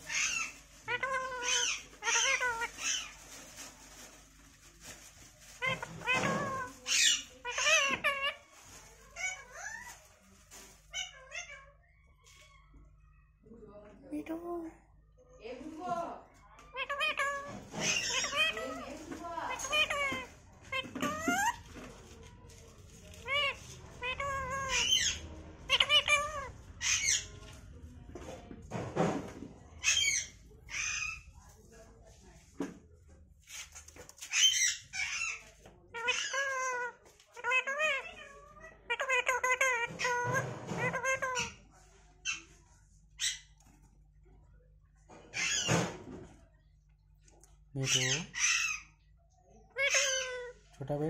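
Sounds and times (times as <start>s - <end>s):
parakeet calling: 0.1s - 3.2s, 5.6s - 8.4s, 16.7s - 21.9s, 23.1s - 27.4s, 29.8s - 31.3s, 34.2s - 38.1s, 45.3s - 45.9s, 47.8s - 48.9s, 49.7s - 50.5s.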